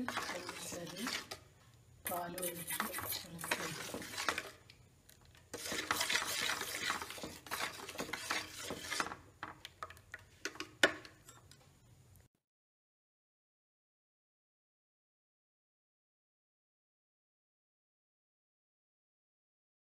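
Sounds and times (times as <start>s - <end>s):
metal spoon stirring in steel bowl: 0.0s - 1.5s, 2.1s - 4.7s, 5.5s - 9.2s.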